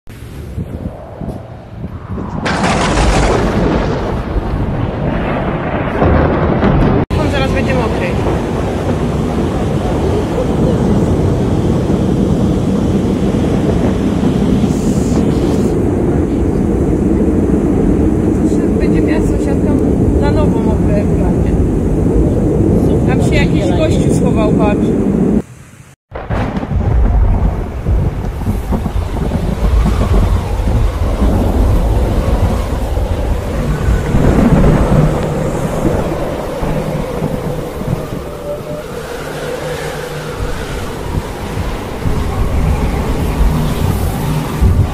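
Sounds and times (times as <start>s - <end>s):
wind gusting on microphone: 0.1s - 44.9s
heavy rain hissing: 7.1s - 24.4s, 27.4s - 44.9s.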